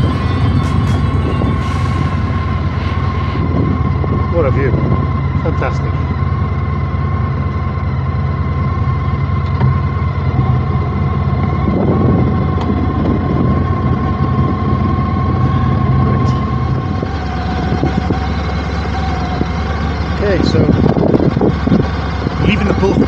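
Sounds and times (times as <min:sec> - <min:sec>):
motorcycle engine running: 0:00.0 - 0:23.0
steady high whine: 0:00.0 - 0:23.0.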